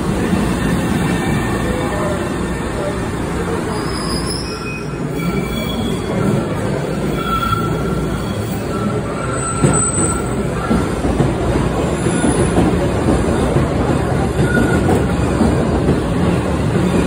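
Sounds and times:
subway train rumbling on rails: 0.0 - 17.0
train wheels squealing: 3.7 - 10.9, 14.4 - 15.1.

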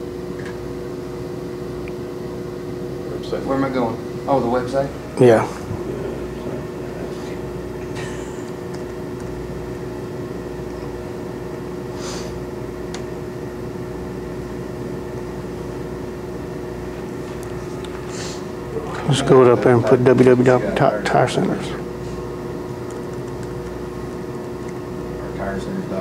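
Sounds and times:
low room hum with pitched tone: 0.0 - 26.0.

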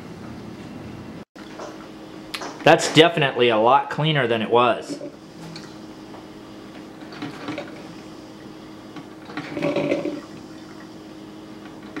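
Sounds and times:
steady low hum: 0.0 - 12.0
coffee maker gurgling: 4.7 - 5.9, 6.6 - 12.0.

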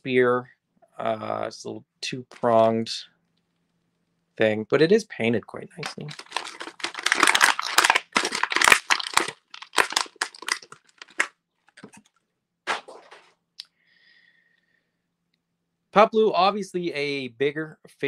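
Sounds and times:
plastic bag crinkling: 5.8 - 12.2, 12.8 - 13.3.

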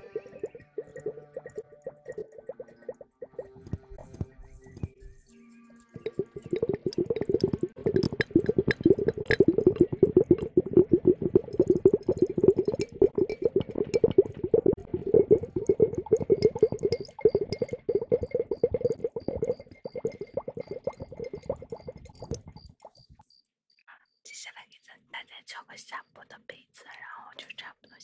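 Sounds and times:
wet crackles and squishes: 6.0 - 23.2.

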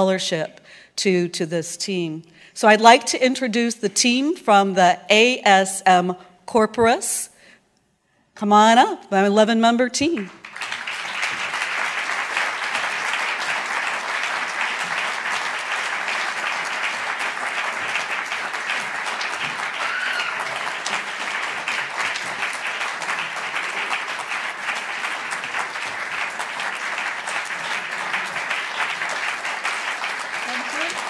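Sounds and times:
audience applauding: 10.3 - 31.0.

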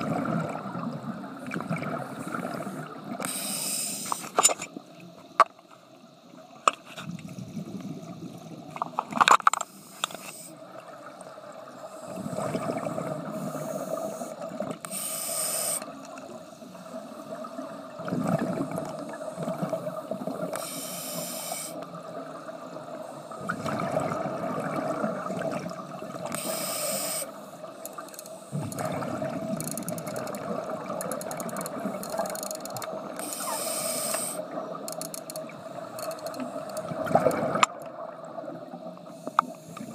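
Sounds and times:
exhaled bubbles rumbling: 0.0 - 3.2, 7.1 - 8.9, 10.6 - 13.6, 17.4 - 20.5, 22.0 - 26.3, 28.5 - 32.3, 35.5 - 39.0
regulator inhale hiss: 2.0 - 4.4, 9.6 - 10.6, 13.2 - 17.5, 19.0 - 22.0, 26.3 - 28.7, 33.2 - 34.5, 39.0 - 39.9.

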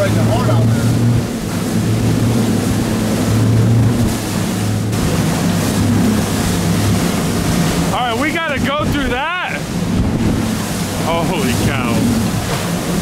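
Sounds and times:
motorboat engine droning: 0.0 - 13.0
water rushing along hull: 0.0 - 13.0
wind noise: 4.9 - 13.0.

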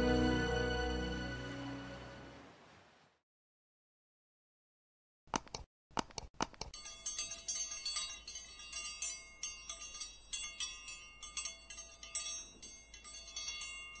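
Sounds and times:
high bell-like chimes: 6.8 - 14.0.

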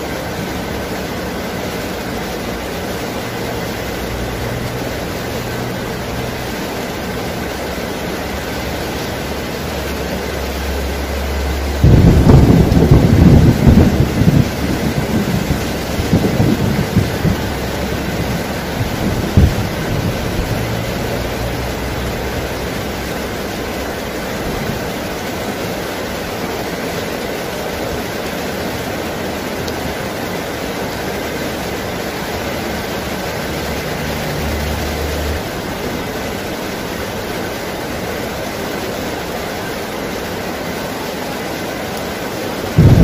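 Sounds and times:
heavy rain falling: 0.0 - 43.0
low rumble: 10.8 - 23.0, 42.8 - 43.0.

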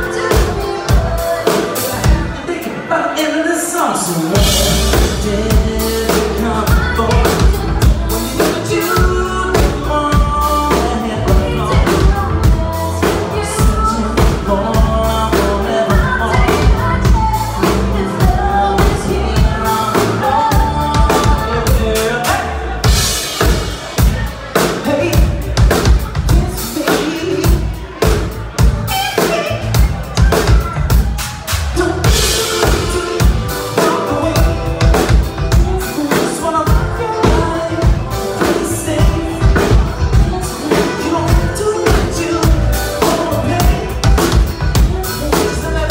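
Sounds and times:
drum kit beat: 0.0 - 2.5, 4.0 - 45.9
keyboard: 0.0 - 45.9
person singing into microphone: 0.0 - 45.9
electric bass guitar: 4.3 - 45.9.

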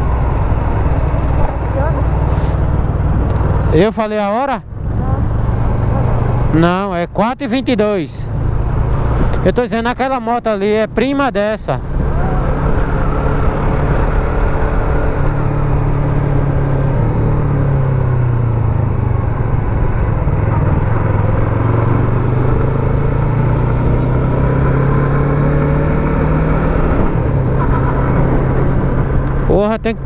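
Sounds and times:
motorcycle engine cruising: 0.0 - 30.0.

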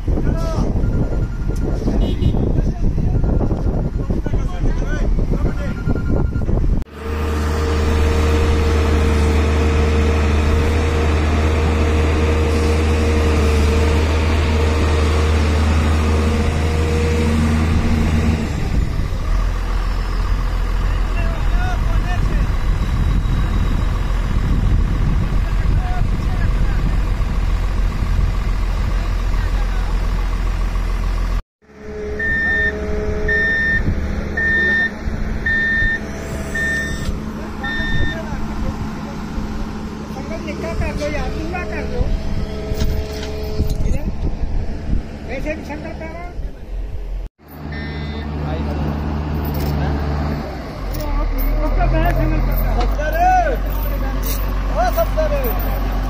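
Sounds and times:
excavator travel alarm beeping: 0.4 - 6.8, 31.8 - 38.3, 47.6 - 48.3
excavator diesel engine running: 3.1 - 56.0
high whine: 31.6 - 44.7.

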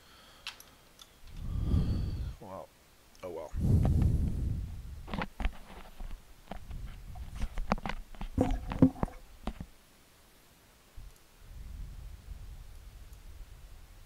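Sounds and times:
clicks and knocks of small parts: 0.4 - 1.4.

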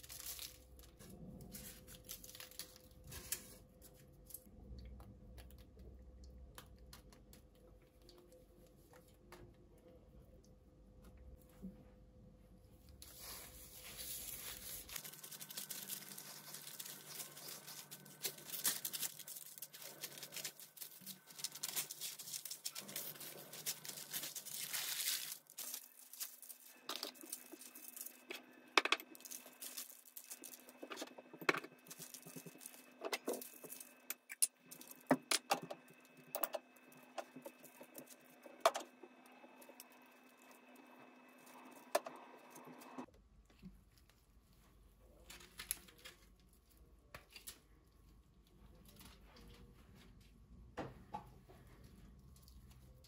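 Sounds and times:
parchment paper crinkling: 0.0 - 4.4, 13.0 - 39.0, 43.5 - 49.6
spices pattering on paper: 13.1 - 28.4.

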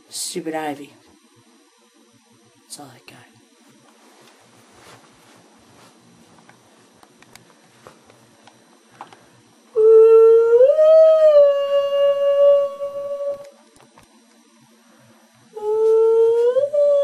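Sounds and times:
long rising howl: 9.7 - 13.5.

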